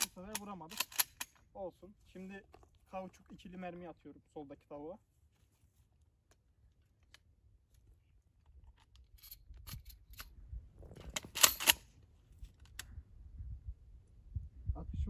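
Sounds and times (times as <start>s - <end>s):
metallic clicks and rattles: 0.0s - 1.4s, 10.9s - 11.8s.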